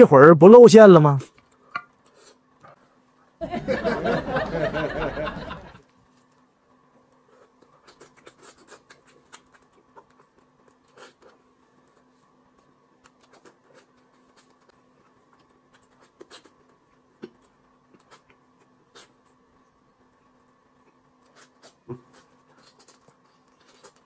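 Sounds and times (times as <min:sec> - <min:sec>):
faint steady hum: 0:00.0 - 0:24.0
chewing and lip smacks: 0:07.1 - 0:24.0.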